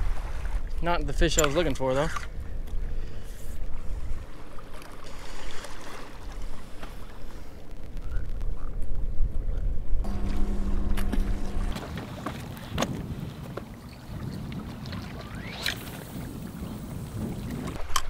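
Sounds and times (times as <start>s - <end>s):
wind buffeting microphone: 6.5s - 18.0s
low hum with clicks: 10.0s - 11.9s.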